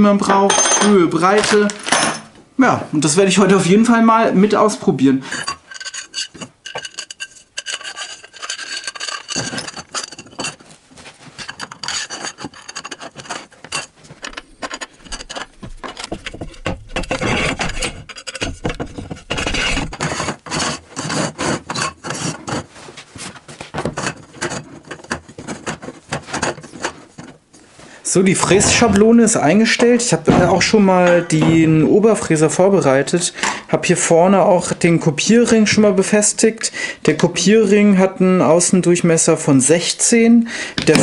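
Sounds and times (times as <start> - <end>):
metal scraping on wood: 5.2 - 33.7.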